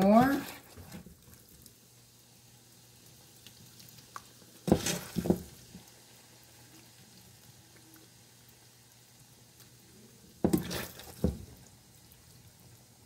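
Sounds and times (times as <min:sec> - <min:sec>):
spoon scooping and dropping food: 0:04.7 - 0:05.5, 0:10.4 - 0:11.5.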